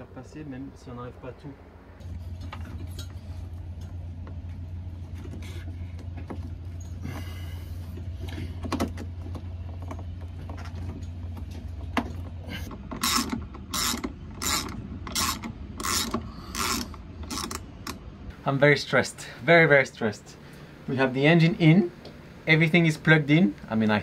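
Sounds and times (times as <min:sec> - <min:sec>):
steady low hum: 0:00.0 - 0:24.0
cables and parts rattling: 0:02.0 - 0:18.1
ratchet wrench clicking: 0:13.0 - 0:18.0.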